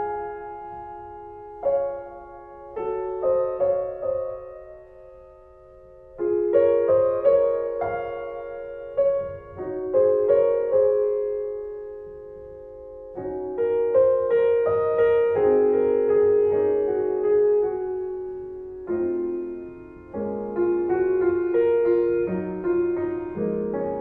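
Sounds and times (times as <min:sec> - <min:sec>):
piano music: 0:00.0 - 0:24.0.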